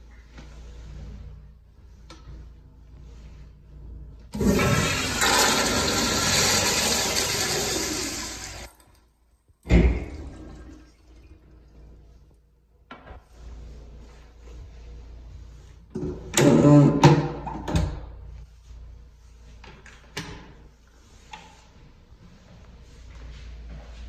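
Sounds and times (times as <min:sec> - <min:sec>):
toilet flush water rushing: 0:04.3 - 0:08.8, 0:09.7 - 0:11.7.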